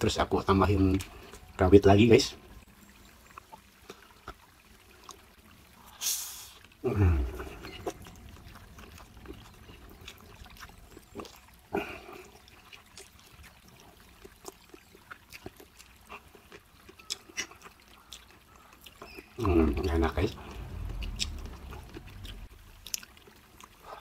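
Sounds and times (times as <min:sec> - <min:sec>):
wet chewing: 0:00.7 - 0:01.6, 0:02.5 - 0:24.0
low falling sound: 0:20.3 - 0:22.5.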